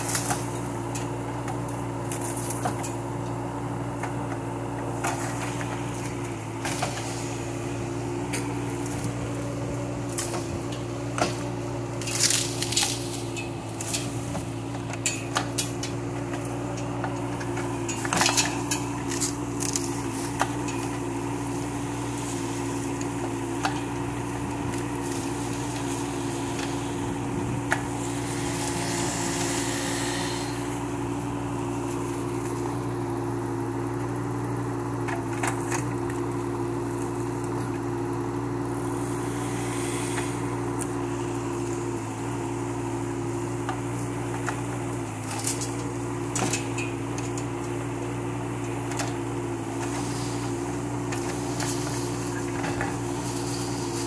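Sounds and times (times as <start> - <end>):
diesel engine running: 0.0 - 54.0
branches cracking and snapping: 10.0 - 14.2, 16.4 - 20.9, 44.0 - 46.0.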